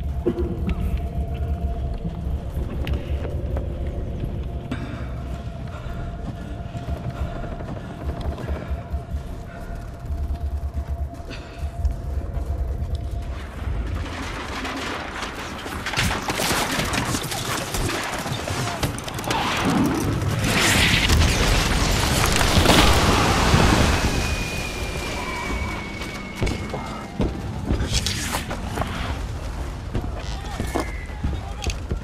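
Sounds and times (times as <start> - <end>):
explosions: 19.4 - 29.4.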